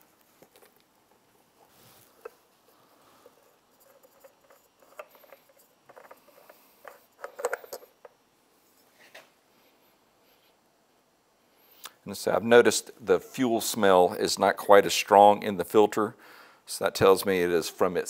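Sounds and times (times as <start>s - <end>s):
oil filter clicks and scrapes: 3.2s - 7.8s.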